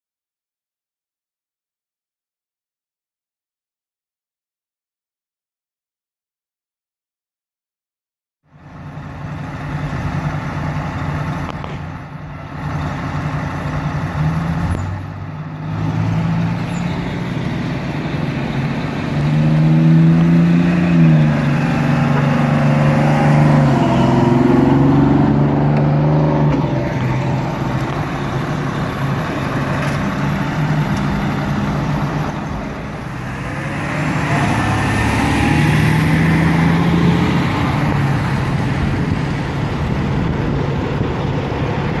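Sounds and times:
diesel fire trucks driving past: 8.5 - 42.0.

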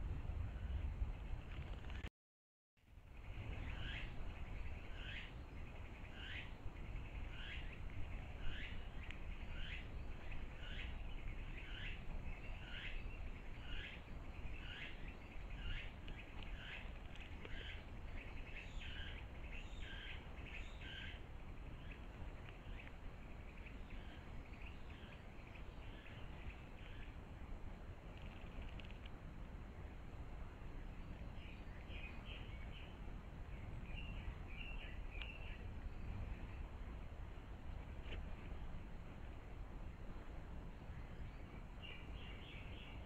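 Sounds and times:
low steady rumble: 0.0 - 2.1, 2.9 - 43.0.

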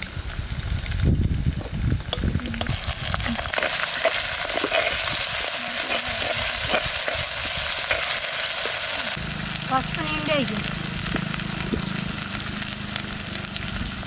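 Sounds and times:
food sizzling in hot oil: 0.0 - 14.0
spoon clinking and scraping pan: 2.6 - 9.0.

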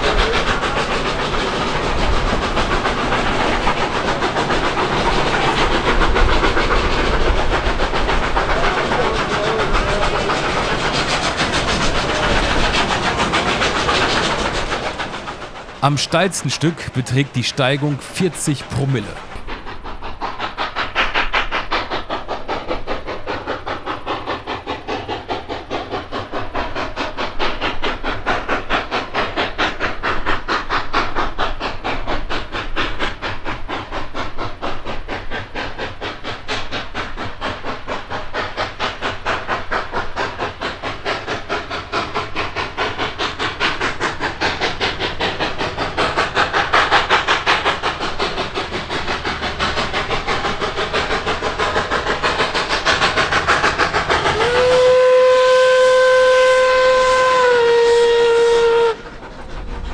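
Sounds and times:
steam hissing: 0.0 - 59.9
steam locomotive exhaust chuffs: 0.0 - 59.9.

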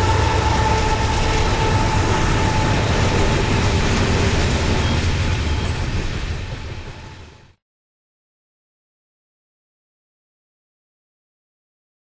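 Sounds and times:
diesel locomotive rumble: 0.0 - 7.6
train cars rolling on rails: 0.0 - 7.6.

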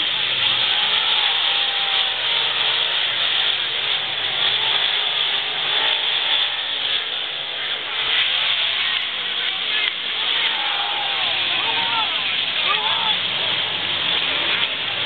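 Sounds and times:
race car engines running hard: 0.0 - 15.0.

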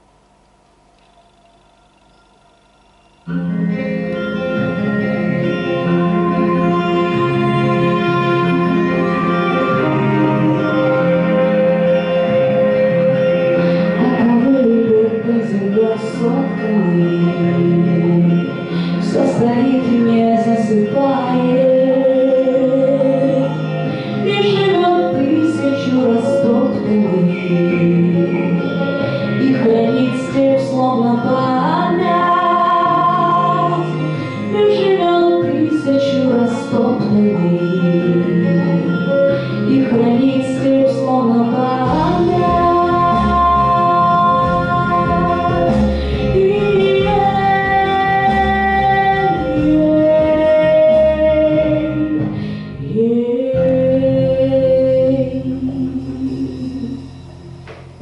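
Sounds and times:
instrumental accompaniment: 1.0 - 58.0
woman singing: 5.7 - 57.1.

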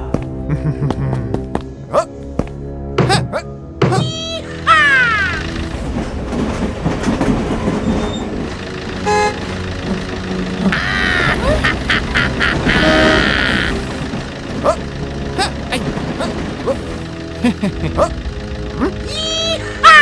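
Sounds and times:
horn toots: 9.0 - 9.6, 12.4 - 13.8
cartoon engine running: 9.0 - 20.0.

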